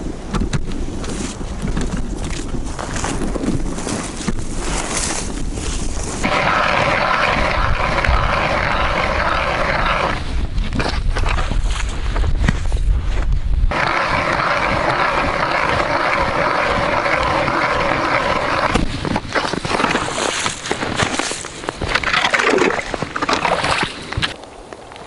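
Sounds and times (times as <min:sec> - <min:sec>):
wind buffeting microphone: 0:00.0 - 0:24.8
footsteps crunching through snow: 0:01.0 - 0:06.3, 0:10.8 - 0:13.4, 0:18.9 - 0:22.1.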